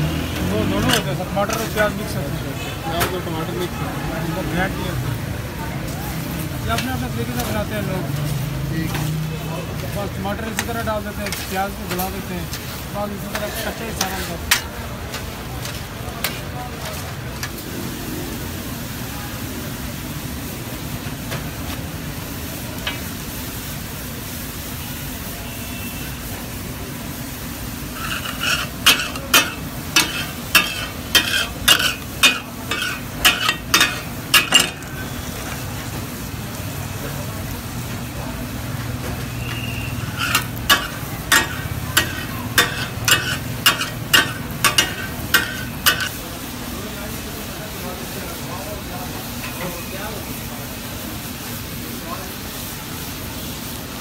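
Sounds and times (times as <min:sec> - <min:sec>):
food sizzling on hot griddle: 0:00.0 - 0:54.0
metal spatulas clacking on griddle: 0:10.5 - 0:12.6, 0:13.3 - 0:17.6, 0:28.0 - 0:35.0, 0:39.5 - 0:46.2.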